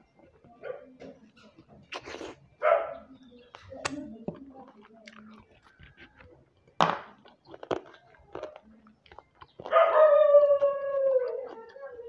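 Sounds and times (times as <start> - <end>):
person chewing and lip-smacking: 1.8 - 2.5, 3.5 - 12.0.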